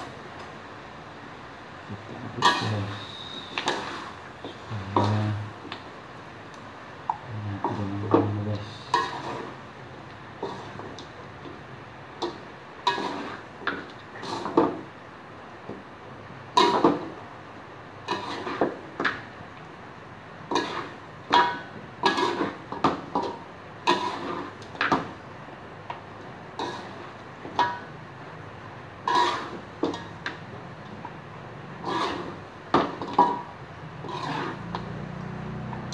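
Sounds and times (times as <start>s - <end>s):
metal spatula scraping a wok: 2.4s - 5.5s, 8.6s - 9.6s, 10.4s - 10.9s, 12.8s - 14.7s, 16.6s - 17.1s, 18.0s - 19.1s, 20.5s - 24.6s, 26.6s - 27.9s, 29.0s - 30.1s, 31.8s - 34.8s.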